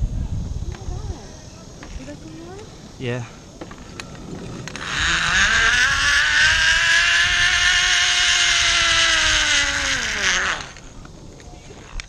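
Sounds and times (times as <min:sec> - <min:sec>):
zipline pulleys whining on cable: 0:03.6 - 0:11.1.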